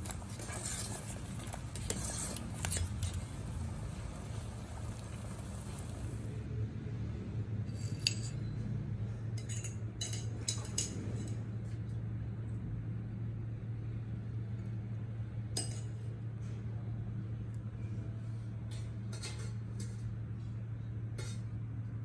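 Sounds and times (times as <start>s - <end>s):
steady low hum: 0.0s - 7.7s.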